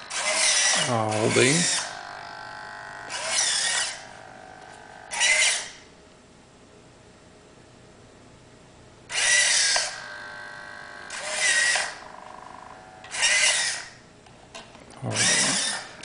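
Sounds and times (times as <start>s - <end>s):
servo motors whirring: 0.0s - 5.8s, 9.1s - 14.0s, 15.0s - 16.0s
faint steady servo hum: 0.0s - 16.0s.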